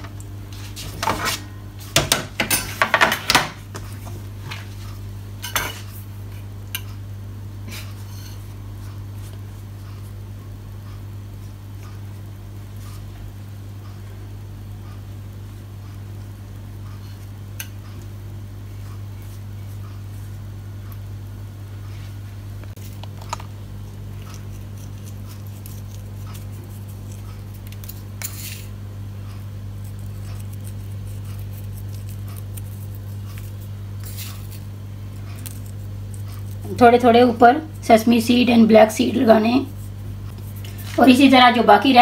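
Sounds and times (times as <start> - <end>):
kitchen appliance hum: 0.0 - 42.0.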